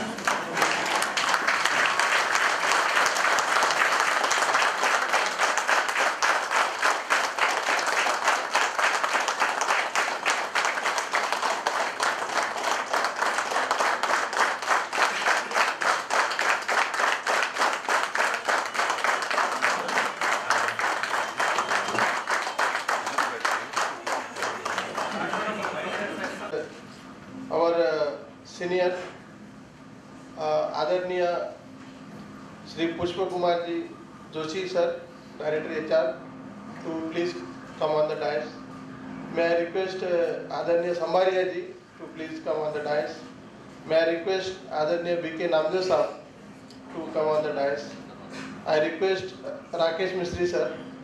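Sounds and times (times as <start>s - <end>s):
people applauding: 0.0s - 26.6s.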